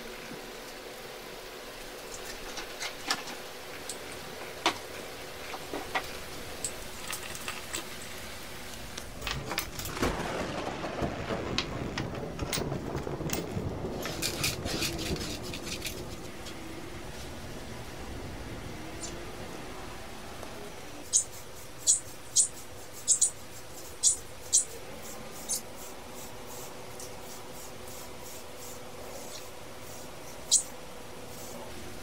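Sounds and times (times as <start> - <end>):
gravel and metal parts clattering: 2.2 - 8.2, 8.8 - 16.6.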